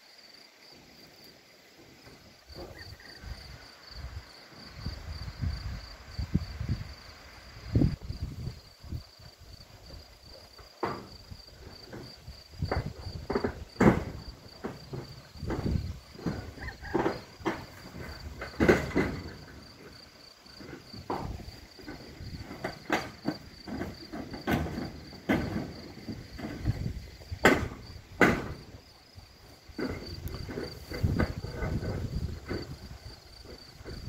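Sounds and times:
insects chirring: 0:00.0 - 0:34.0
wind on microphone: 0:02.6 - 0:10.2, 0:30.0 - 0:34.0
sharp knocks: 0:12.6 - 0:19.4, 0:20.6 - 0:28.8.

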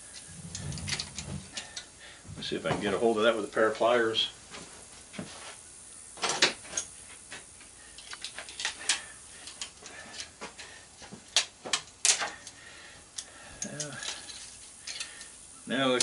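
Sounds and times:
pliers clicking on metal parts: 0:08.0 - 0:10.3, 0:11.3 - 0:15.3.

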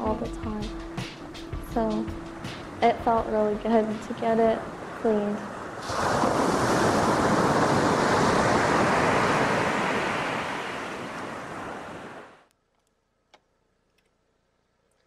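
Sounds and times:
wind on microphone: 0:01.6 - 0:12.4
ocean surf washing onto beach: 0:02.0 - 0:12.4.

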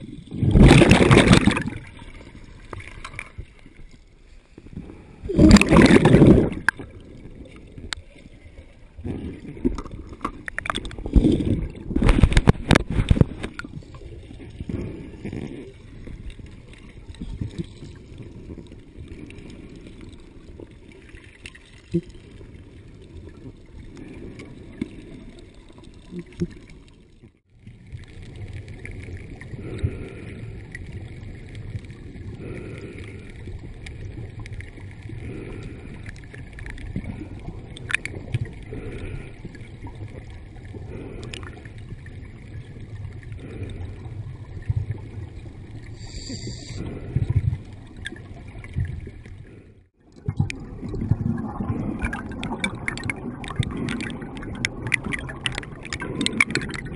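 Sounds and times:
spring water rushing and gurgling: 0:05.3 - 0:07.6.

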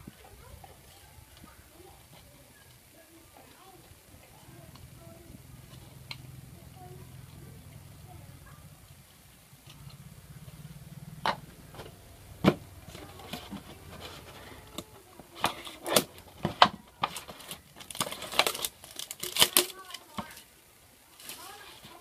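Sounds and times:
plastic bottle crackling: 0:11.3 - 0:20.5.

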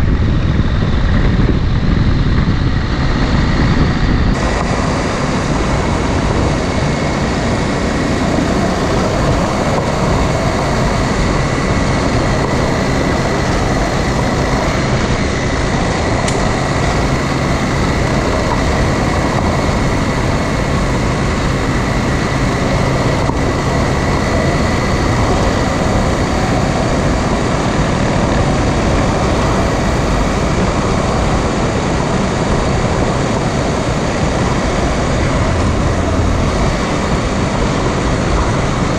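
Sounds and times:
faint constant whine: 0:00.0 - 0:38.9
motorcycle engine drone: 0:00.0 - 0:38.9
wind noise: 0:00.0 - 0:38.9.

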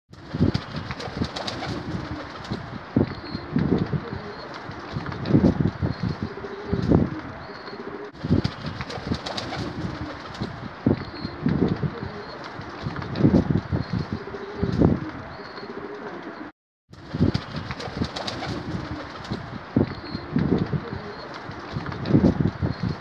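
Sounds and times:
pigeon cooing: 0:03.0 - 0:04.7, 0:06.2 - 0:08.2, 0:11.0 - 0:12.4, 0:13.9 - 0:16.5, 0:19.9 - 0:21.4.

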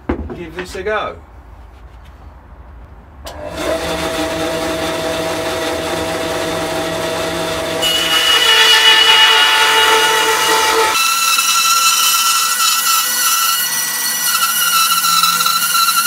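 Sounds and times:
bandsaw blade cutting wood: 0:03.3 - 0:16.0
bandsaw running: 0:03.3 - 0:16.0.

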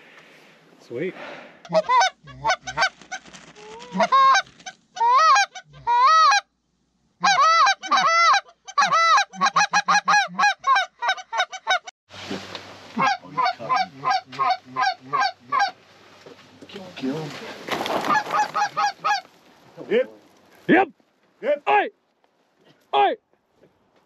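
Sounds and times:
goose call clucks: 0:01.6 - 0:06.4, 0:07.2 - 0:11.9, 0:13.0 - 0:15.8, 0:18.1 - 0:19.3
goose call honks: 0:13.0 - 0:15.8.

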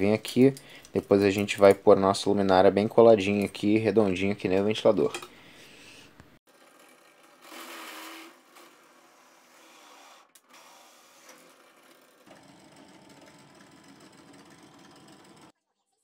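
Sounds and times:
drill press motor running: 0:10.5 - 0:15.5.

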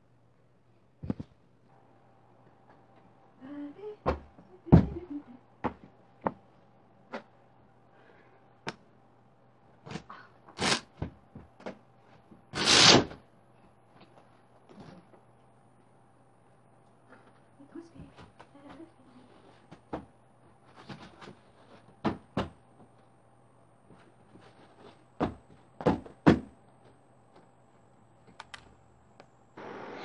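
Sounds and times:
faint steady hum: 0:00.0 - 0:30.0
cushions thumping: 0:04.0 - 0:06.4, 0:20.8 - 0:22.6, 0:25.2 - 0:26.6.

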